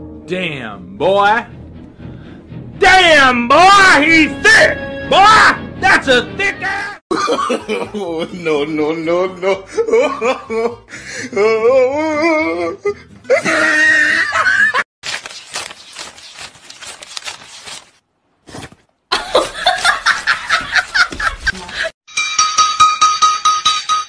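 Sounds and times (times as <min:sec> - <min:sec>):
people laughing: 0:07.1 - 0:10.8, 0:19.1 - 0:22.0
banknotes being riffled: 0:15.0 - 0:18.0
music with ringing clinks: 0:22.1 - 0:24.0.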